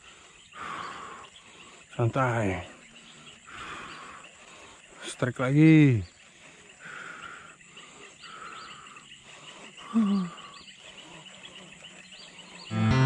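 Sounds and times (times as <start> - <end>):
high chirps: 12.7 - 13.0.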